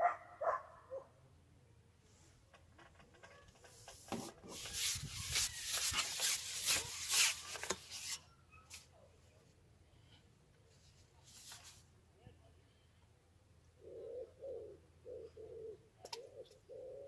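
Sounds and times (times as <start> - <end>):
fishing pole scraping in hands: 3.6 - 8.8.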